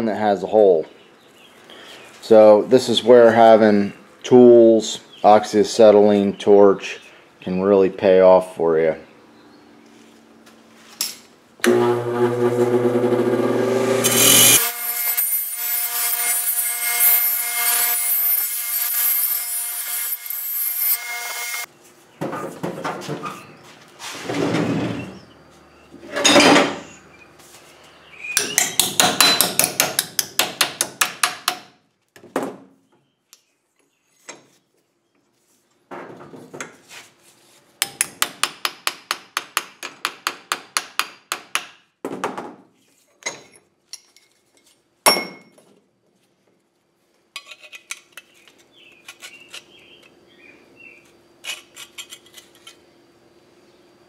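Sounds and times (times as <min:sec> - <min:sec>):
hammer striking metal: 0:28.4 - 0:31.6.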